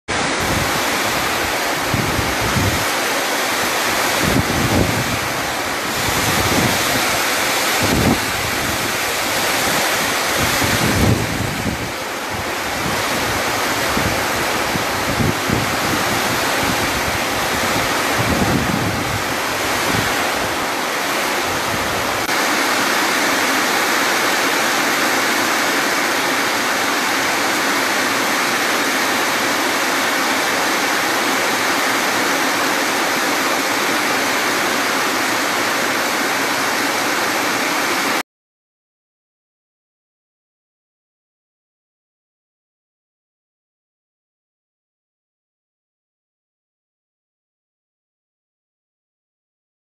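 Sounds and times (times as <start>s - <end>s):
torrential rain: 0.1s - 38.2s
wind buffeting microphone: 4.1s - 20.6s.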